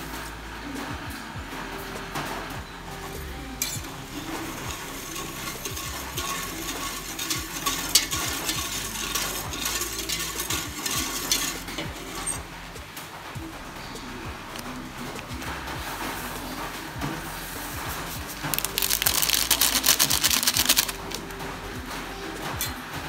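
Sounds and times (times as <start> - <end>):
whisk swishing through liquid: 3.9 - 12.4
whisk clicking against metal pot: 4.1 - 12.4, 18.4 - 21.2.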